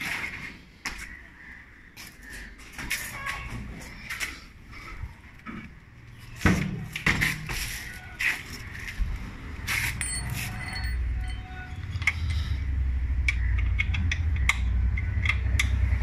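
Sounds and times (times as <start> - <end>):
hand tools knocking and clinking: 9.8 - 11.5.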